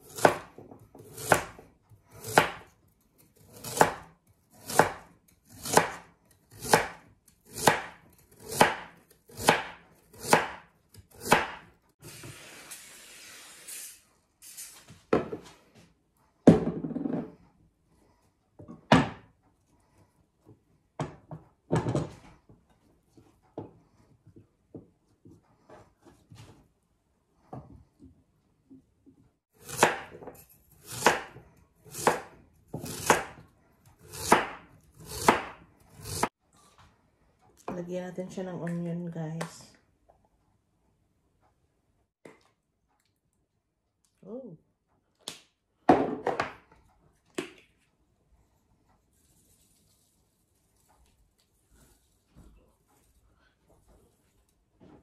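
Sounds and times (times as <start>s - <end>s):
knife chopping on wooden board: 0.0s - 2.8s, 3.4s - 11.8s, 29.6s - 36.3s.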